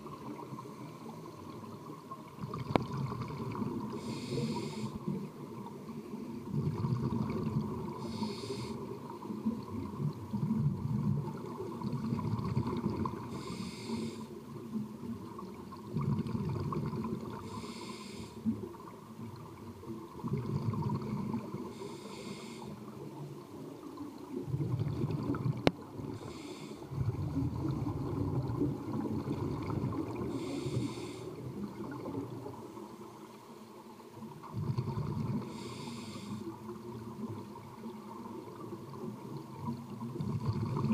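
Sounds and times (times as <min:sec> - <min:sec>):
exhaled air bubbling: 0:00.0 - 0:32.8, 0:34.2 - 0:40.9
regulator inhalation hiss: 0:03.9 - 0:05.1, 0:08.0 - 0:08.9, 0:13.3 - 0:14.4, 0:17.4 - 0:18.5, 0:21.7 - 0:22.8, 0:26.1 - 0:26.9, 0:30.3 - 0:31.4, 0:35.5 - 0:36.5.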